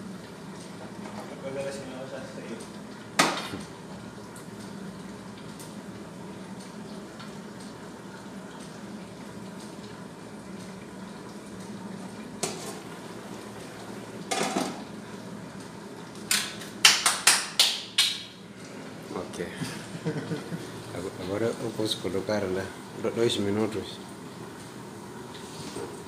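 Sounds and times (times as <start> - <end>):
low kitchen hum: 0.0 - 26.0
metal cookware clanking: 14.3 - 14.8.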